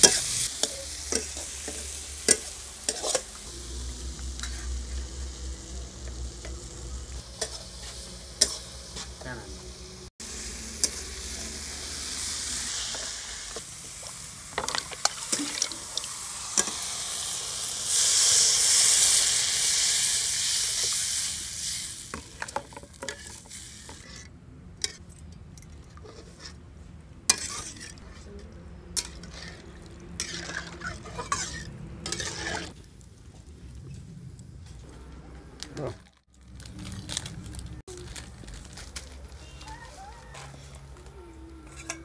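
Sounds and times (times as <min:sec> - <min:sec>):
metal spatula scraping pan: 0:00.0 - 0:03.4, 0:04.2 - 0:05.0, 0:07.3 - 0:09.3, 0:27.3 - 0:32.8
curry sizzling in a pan: 0:00.0 - 0:24.2, 0:30.2 - 0:32.8.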